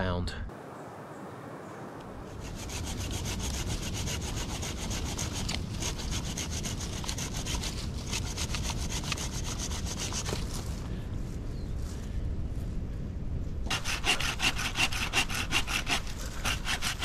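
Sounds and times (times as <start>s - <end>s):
hand saw cutting branch: 2.3s - 10.5s, 13.7s - 17.0s.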